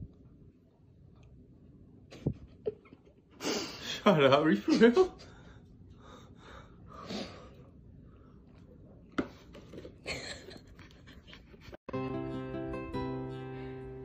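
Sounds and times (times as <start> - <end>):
quiet breathing: 5.2 - 8.9
acoustic guitar tune: 11.9 - 14.0.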